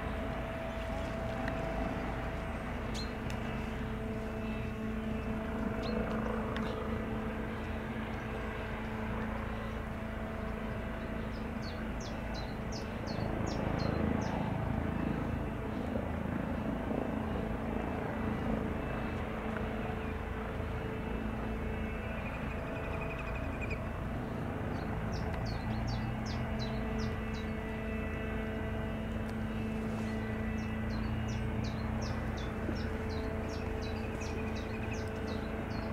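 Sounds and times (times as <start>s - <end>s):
helicopter engines and rotors droning: 0.0s - 35.9s.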